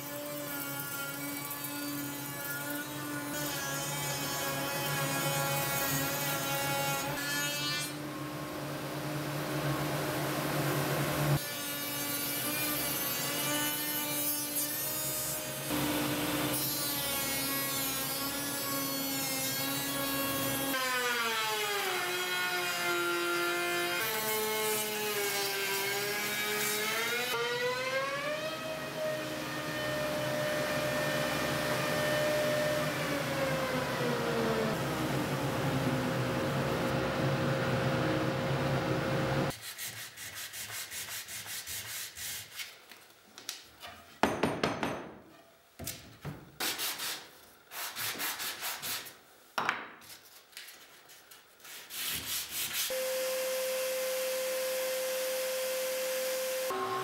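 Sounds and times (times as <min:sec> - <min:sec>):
sanding block rubbing wood: 0:39.5 - 0:42.8, 0:46.6 - 0:49.2, 0:51.6 - 0:52.9.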